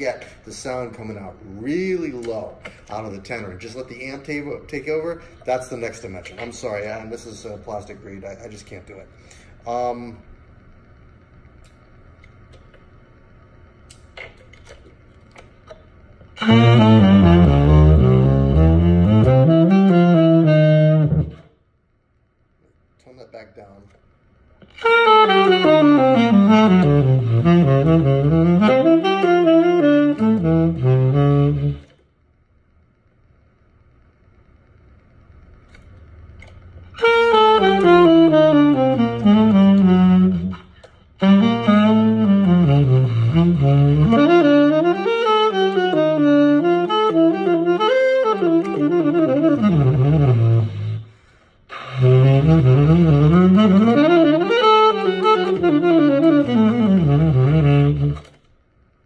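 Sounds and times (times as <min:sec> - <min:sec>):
tenor saxophone run: 0:16.4 - 0:21.5, 0:24.6 - 0:32.0, 0:36.9 - 0:58.4.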